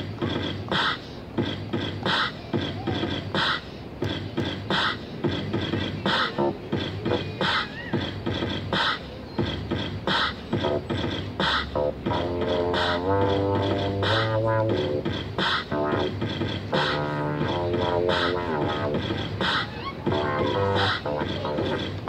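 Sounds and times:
electronic hip-hop drum beat: 0:00.0 - 0:22.0.

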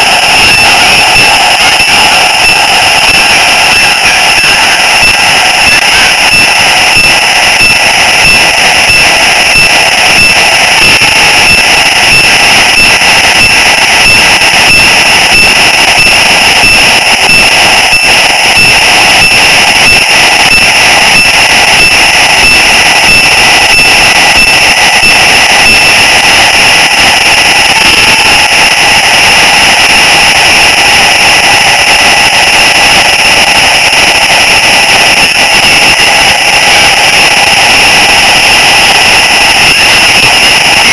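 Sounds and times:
model train motor whining: 0:00.0 - 0:19.7.

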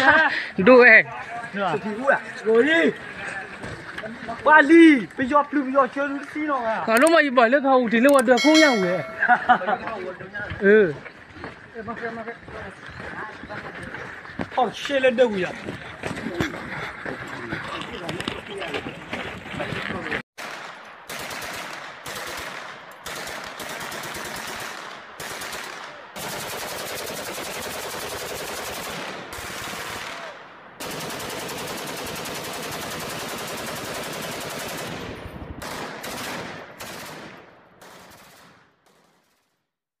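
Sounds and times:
automatic gunfire bursts: 0:20.4 - 0:30.2, 0:30.8 - 0:39.0.

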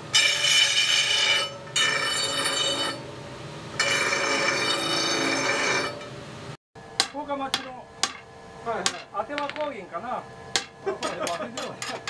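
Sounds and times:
grinding wheel grinding iron: 0:00.1 - 0:03.1, 0:03.8 - 0:06.2
hammer tapping metal on anvil: 0:07.0 - 0:09.7, 0:10.6 - 0:12.0.

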